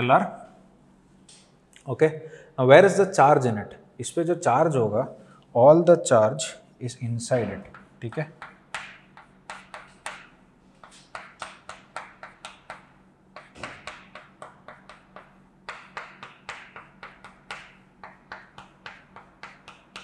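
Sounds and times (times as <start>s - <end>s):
chalk tapping on chalkboard: 7.4s - 20.0s.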